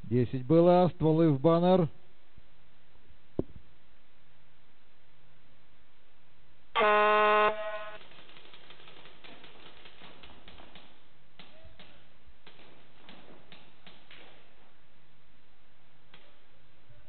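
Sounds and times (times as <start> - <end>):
electronic start horn: 6.8 - 8.0
sharp clicks of marker shots: 7.9 - 14.4.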